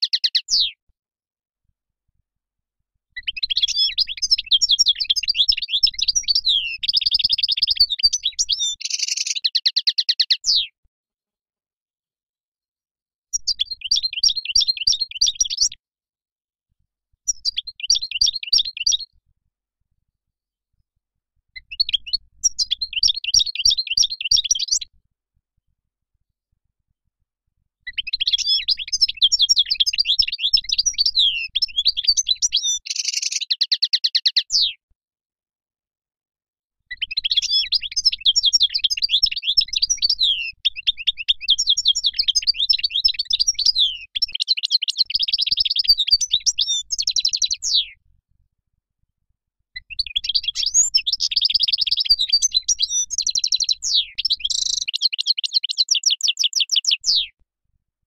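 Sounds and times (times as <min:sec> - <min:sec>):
goldfinch singing: 0:00.0 - 0:00.7, 0:03.2 - 0:10.7, 0:13.3 - 0:15.8, 0:17.3 - 0:19.1, 0:21.6 - 0:24.9, 0:27.9 - 0:34.7, 0:36.9 - 0:47.9, 0:49.8 - 0:57.3.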